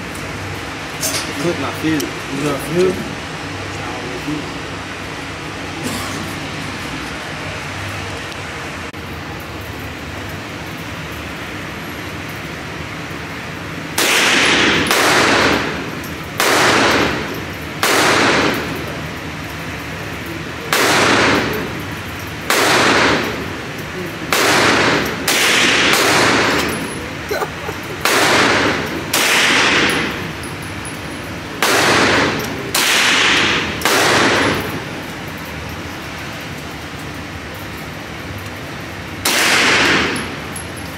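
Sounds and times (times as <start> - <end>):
pistol shots: 14.0 - 18.8, 20.7 - 21.8, 22.5 - 23.5, 24.3 - 27.0, 27.9 - 30.3, 31.6 - 34.8, 39.2 - 40.4.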